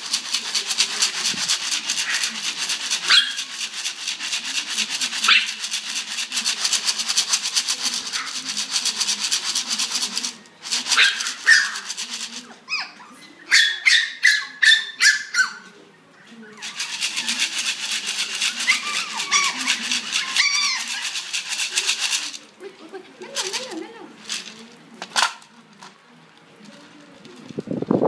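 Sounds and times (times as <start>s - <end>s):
fast even rattling: 0.0s - 12.5s, 16.6s - 22.5s, 23.2s - 25.8s
puppies yelping and yipping: 12.7s - 15.7s, 18.1s - 21.4s.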